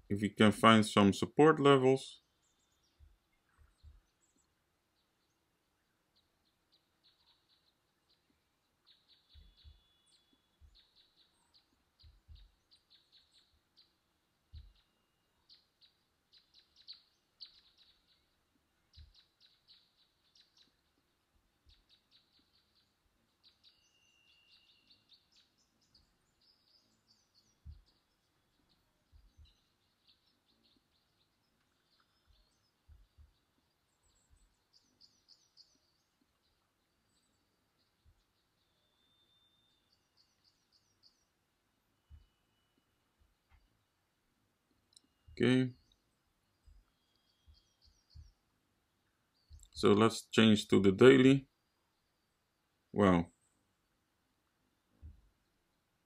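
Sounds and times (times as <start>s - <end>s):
soft low thumps: 2.9s - 4.2s, 10.6s - 10.9s, 12.0s - 12.7s, 14.5s - 14.8s, 27.6s - 28.1s, 29.0s - 29.7s, 32.0s - 34.6s, 47.5s - 48.4s.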